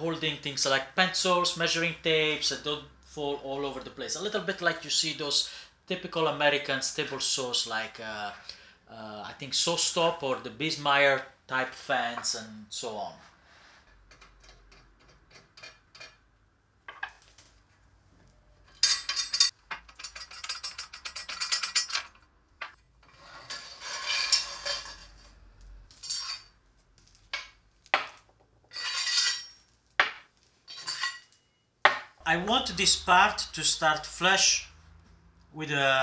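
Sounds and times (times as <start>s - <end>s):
metal parts clinking and rattling: 18.6s - 22.8s, 25.9s - 26.5s, 30.7s - 31.4s.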